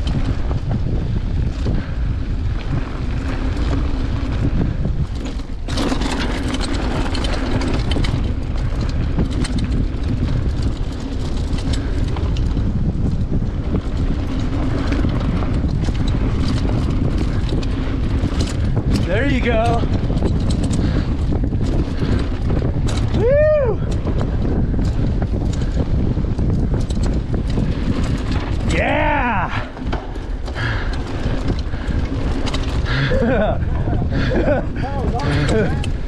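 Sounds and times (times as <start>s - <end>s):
bike clicks and rattles: 0.0s - 36.0s
tyres rolling on dirt: 0.0s - 36.0s
wind buffeting microphone: 0.0s - 36.0s.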